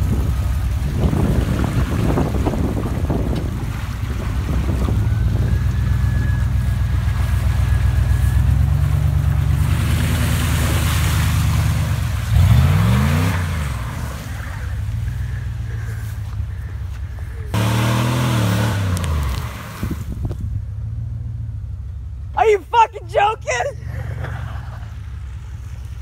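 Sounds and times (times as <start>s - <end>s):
tyres flinging mud: 0.0s - 20.5s
truck engine revving: 0.0s - 22.3s.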